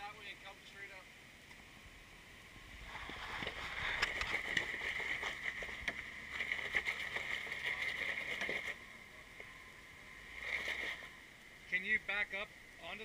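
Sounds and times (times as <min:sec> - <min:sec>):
tires grinding over rock: 0:02.6 - 0:11.8.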